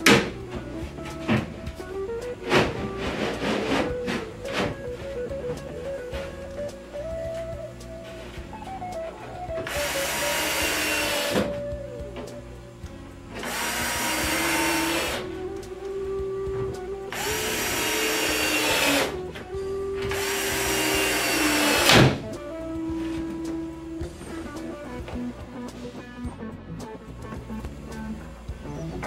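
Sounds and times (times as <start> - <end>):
cordless drill driving screws: 9.6 - 11.5, 13.4 - 15.2, 17.1 - 19.2, 20.1 - 22.2
drill click: 9.6 - 11.6, 13.4 - 15.3, 17.1 - 19.2, 20.0 - 22.2.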